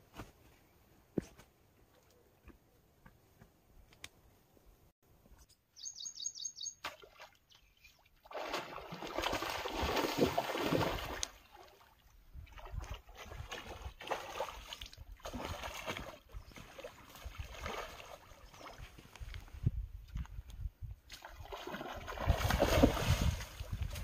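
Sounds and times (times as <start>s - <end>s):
high chirps: 5.8s - 6.8s.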